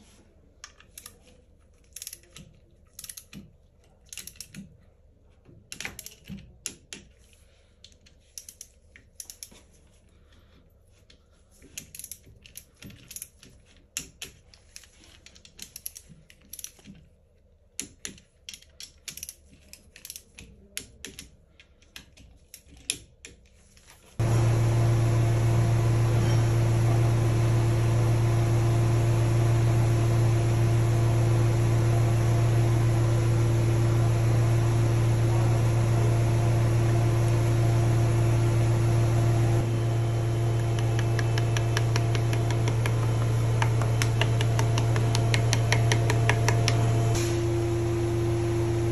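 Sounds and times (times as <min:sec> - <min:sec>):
metal parts and tools clicking: 0:00.6 - 0:04.9, 0:05.7 - 0:09.9, 0:11.5 - 0:24.0
loud machine hum: 0:24.2 - 0:48.9.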